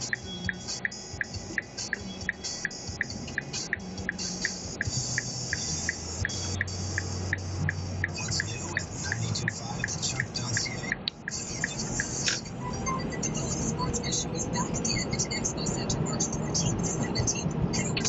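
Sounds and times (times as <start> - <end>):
even ticking: 0.0 - 13.6
music from car radio: 0.0 - 18.0.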